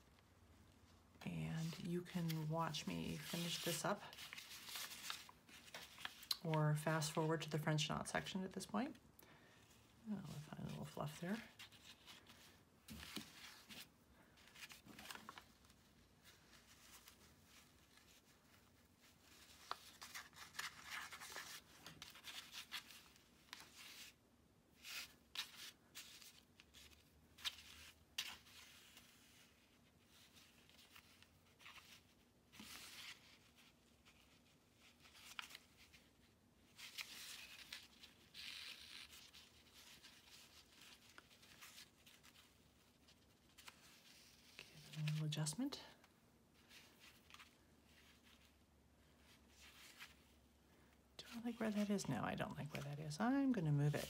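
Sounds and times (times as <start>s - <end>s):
yarn rustling through fabric: 0.0s - 8.8s.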